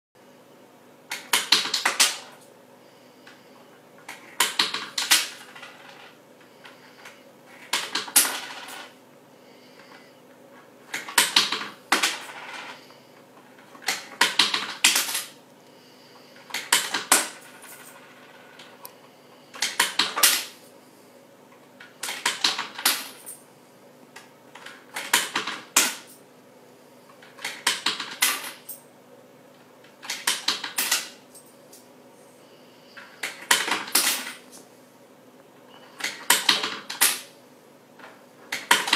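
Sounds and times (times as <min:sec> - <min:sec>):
coins rattling in a money box: 0:04.2 - 0:06.2, 0:07.6 - 0:09.0, 0:10.9 - 0:12.8, 0:16.4 - 0:18.8, 0:22.0 - 0:23.4, 0:27.4 - 0:28.8, 0:30.1 - 0:31.9, 0:33.0 - 0:34.6.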